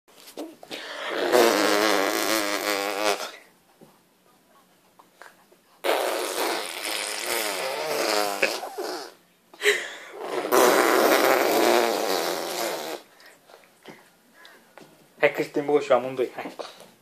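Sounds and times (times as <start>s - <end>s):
mouth fart noises: 0.5s - 3.5s, 5.8s - 9.2s, 10.1s - 13.1s.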